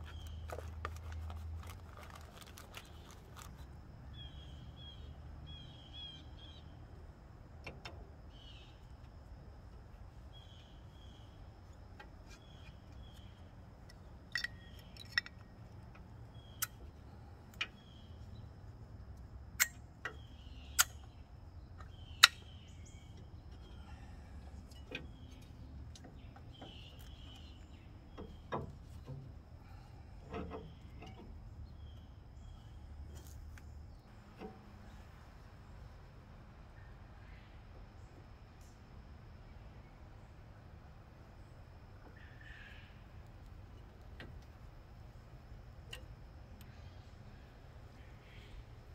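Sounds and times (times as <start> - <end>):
metallic clicks of brake caliper: 12.0 - 16.9, 19.6 - 21.2, 21.8 - 23.7
faint bird chirps: 20.0 - 34.1, 42.0 - 43.2, 46.6 - 48.9.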